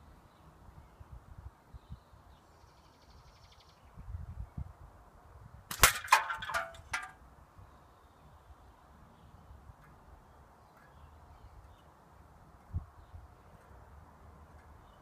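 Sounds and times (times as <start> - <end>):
air rifle shot: 5.7 - 6.3.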